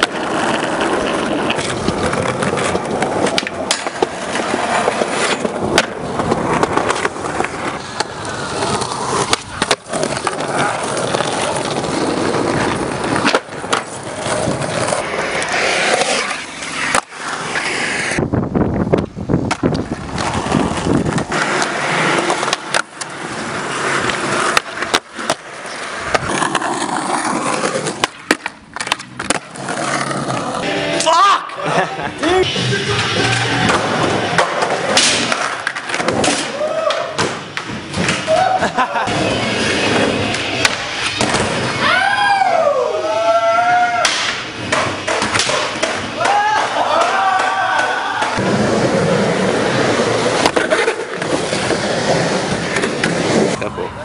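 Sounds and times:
skateboard grinding metal handrail: 0:00.0 - 0:18.2
skateboards rolling on concrete: 0:00.0 - 0:54.0
skateboard tail pops and landings: 0:04.8 - 0:08.2, 0:09.1 - 0:10.6, 0:18.9 - 0:23.1, 0:27.8 - 0:29.6, 0:33.6 - 0:38.4, 0:40.6 - 0:41.7, 0:44.0 - 0:48.9, 0:50.4 - 0:51.8.

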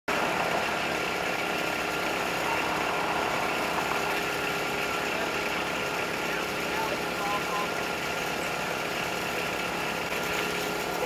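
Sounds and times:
thin whine: 0:00.1 - 0:08.2
engine idling: 0:00.1 - 0:11.0.

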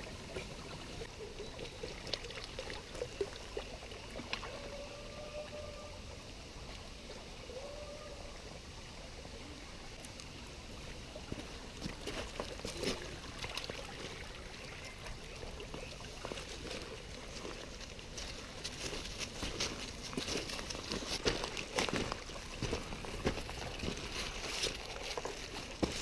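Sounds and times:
stream trickling: 0:00.0 - 0:26.0
footsteps on gravel and leaves: 0:11.3 - 0:13.2, 0:16.2 - 0:26.0.

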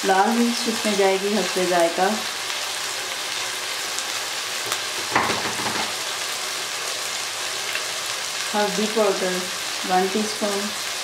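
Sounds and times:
chicken frying in oil: 0:00.0 - 0:11.0.

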